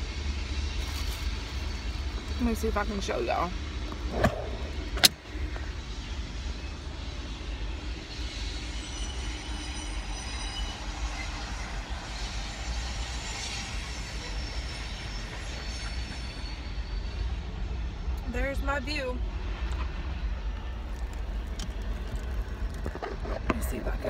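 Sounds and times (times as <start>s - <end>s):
train rumbling past: 0.0s - 24.0s
wheel squeals: 8.1s - 17.2s.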